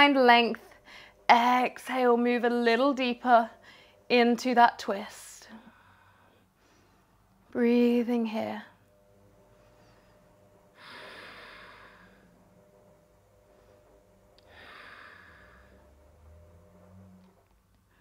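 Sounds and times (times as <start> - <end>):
woman breathing slowly: 0.7 - 1.2, 3.6 - 4.1, 5.5 - 7.4, 9.5 - 18.0.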